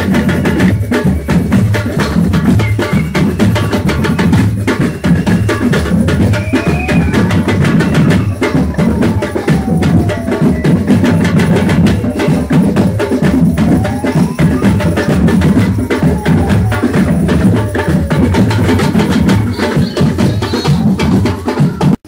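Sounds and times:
street percussion band drumming: 0:00.0 - 0:22.0
faint falling and rising tone: 0:06.0 - 0:19.2.

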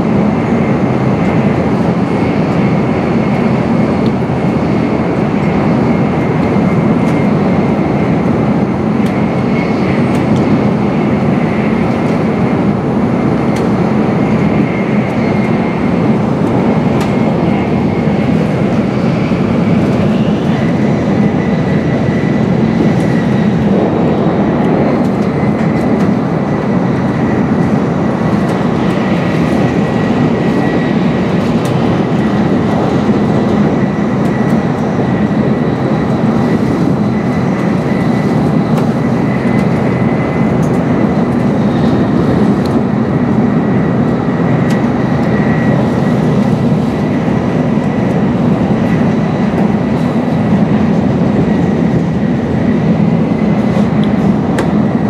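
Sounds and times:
train cabin rumble: 0:14.9 - 0:55.0.

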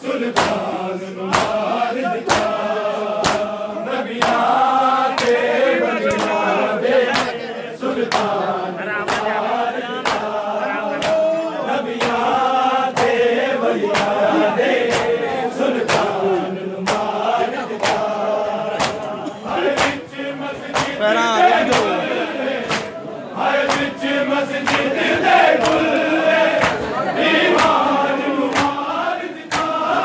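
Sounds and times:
men chanting a lament in chorus: 0:00.0 - 0:30.0
hands slapping bare chests: 0:00.3 - 0:00.7, 0:01.3 - 0:02.6, 0:03.2 - 0:03.5, 0:04.2 - 0:06.4, 0:07.1 - 0:07.4, 0:08.0 - 0:08.4, 0:09.0 - 0:09.4, 0:10.0 - 0:10.4, 0:11.0 - 0:11.3, 0:11.9 - 0:12.3, 0:12.9 - 0:13.2, 0:13.9 - 0:14.2, 0:14.8 - 0:16.2, 0:16.8 - 0:17.2, 0:17.8 - 0:20.0, 0:20.7 - 0:21.0, 0:21.6 - 0:22.0, 0:22.6 - 0:23.0, 0:23.6 - 0:24.0, 0:24.6 - 0:26.9, 0:27.5 - 0:28.9, 0:29.5 - 0:30.0.

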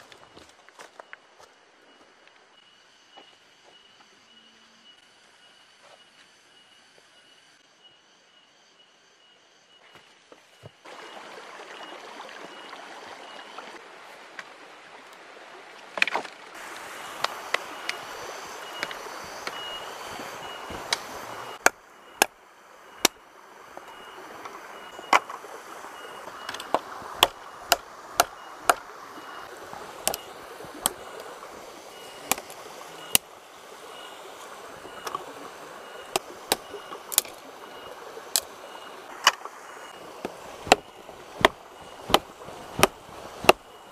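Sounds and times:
stream rushing: 0:10.8 - 0:43.9
wood being chopped: 0:18.8 - 0:22.4, 0:23.0 - 0:23.2, 0:26.5 - 0:28.9, 0:29.9 - 0:31.0, 0:32.3 - 0:33.2, 0:36.2 - 0:37.4, 0:40.2 - 0:43.7.

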